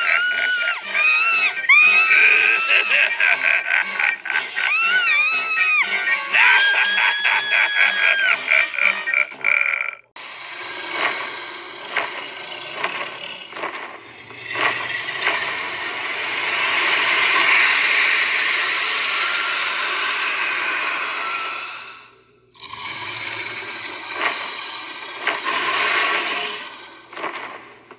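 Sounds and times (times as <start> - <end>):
fog hissing: 14.2 - 27.3
motor whirring: 22.6 - 27.4.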